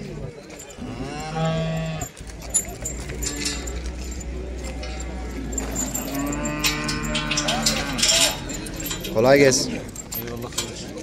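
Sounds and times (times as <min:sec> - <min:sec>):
people talking: 0:00.0 - 0:11.0.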